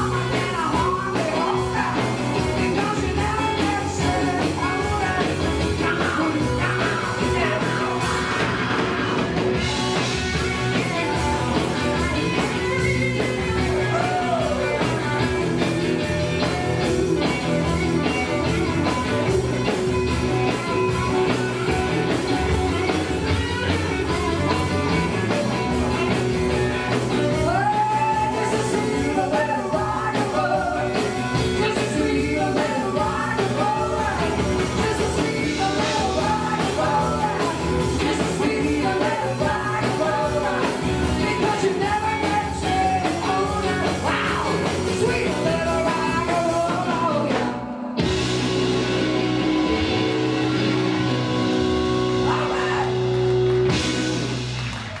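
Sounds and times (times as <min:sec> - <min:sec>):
woman singing lead vocal: 0:00.0 - 0:09.8, 0:12.2 - 0:15.4, 0:27.2 - 0:47.8
rock and roll band playing: 0:00.0 - 0:55.0.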